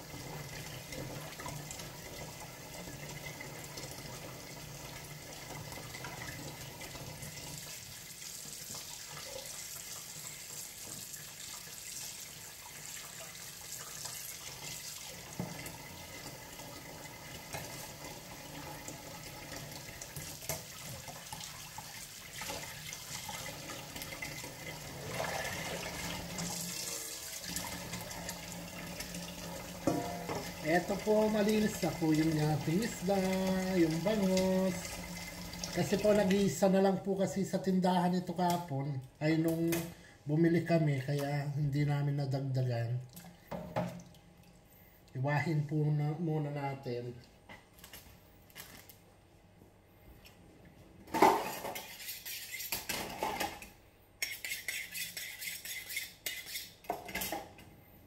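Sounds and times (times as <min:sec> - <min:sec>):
tap running into sink: 0:29.8 - 0:30.6.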